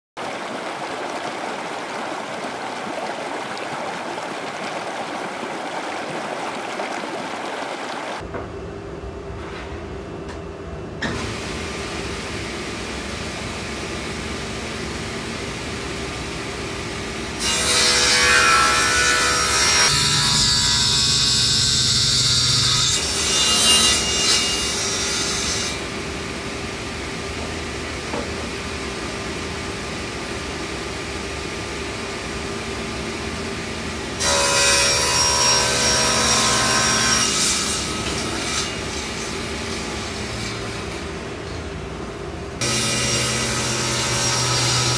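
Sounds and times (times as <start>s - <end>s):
table saw cutting plywood: 17.4s - 26.2s, 34.2s - 41.1s, 42.6s - 44.9s.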